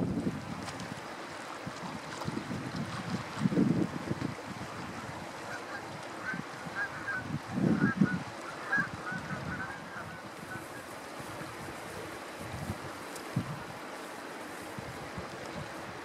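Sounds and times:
wind buffeting microphone: 0.0s - 16.0s
geese honking: 5.4s - 12.2s.

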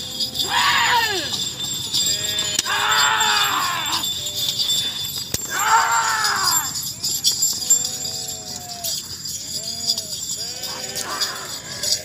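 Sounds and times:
bells jingling: 0.0s - 12.0s
men shouting: 0.0s - 12.0s.

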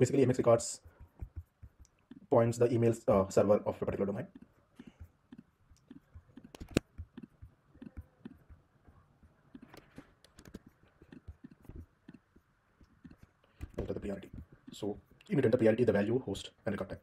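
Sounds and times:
mouse and keyboard clicks: 5.3s - 8.6s, 9.2s - 14.8s.

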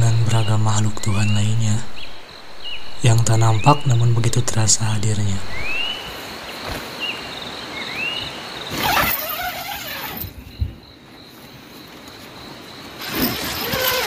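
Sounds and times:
high insect drone: 0.0s - 14.0s
tent fabric rustling: 6.5s - 7.2s, 8.6s - 10.5s, 11.3s - 14.0s
tent zipper being pulled: 8.7s - 10.4s, 13.0s - 14.0s.

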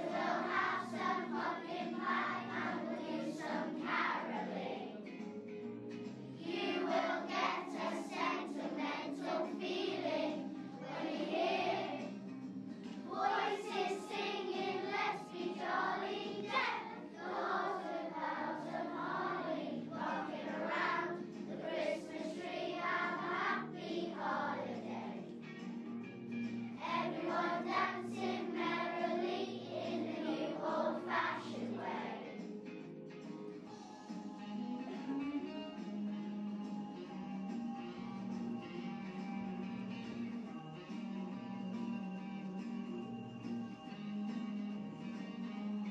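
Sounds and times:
children's choir singing: 0.0s - 5.2s, 6.3s - 25.4s, 26.8s - 32.5s
musical accompaniment: 0.0s - 45.9s.

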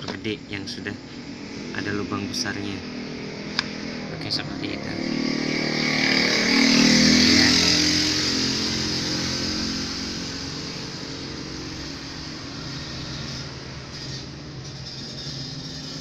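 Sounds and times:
scooter engine running: 4.6s - 12.4s.

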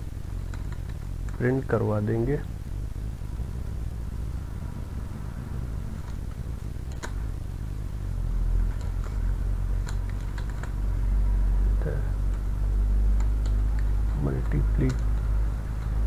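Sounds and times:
steady low hum: 0.0s - 16.0s
keyboard keys clicking: 9.8s - 10.8s, 13.2s - 16.0s.

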